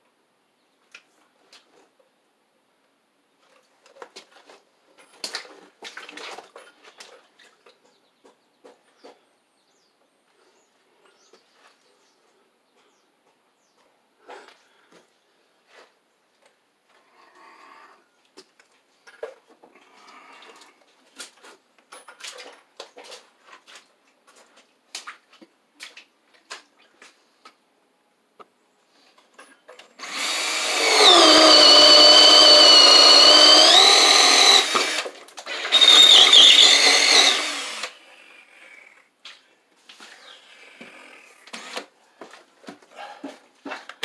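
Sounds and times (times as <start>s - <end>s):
cordless drill drilling into wood: 30.0s - 38.0s, 41.4s - 41.9s.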